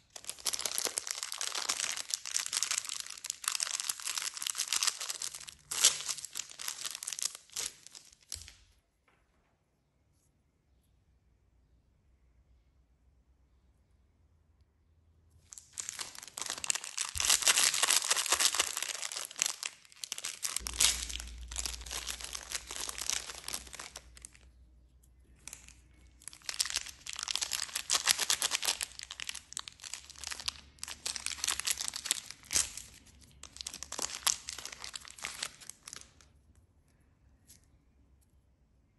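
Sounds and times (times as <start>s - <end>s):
candy wrapper crinkling: 0.0s - 8.6s, 15.4s - 24.6s, 25.2s - 36.6s.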